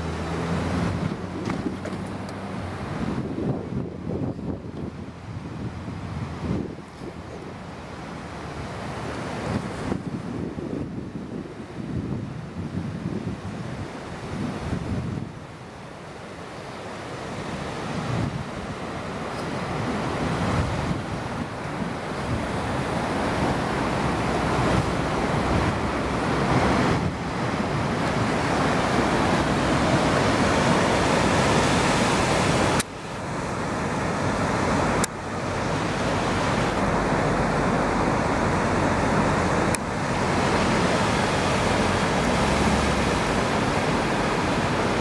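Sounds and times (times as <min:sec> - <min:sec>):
wind on microphone: 0:00.0 - 0:16.2, 0:16.9 - 0:45.0
surf breaking on rocks: 0:17.9 - 0:45.0.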